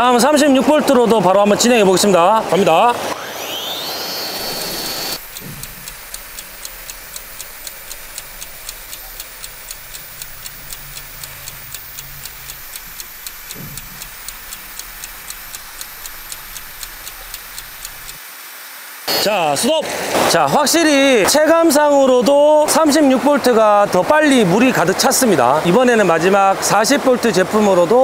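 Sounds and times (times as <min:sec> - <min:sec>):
clock ticking: 0:04.6 - 0:18.2.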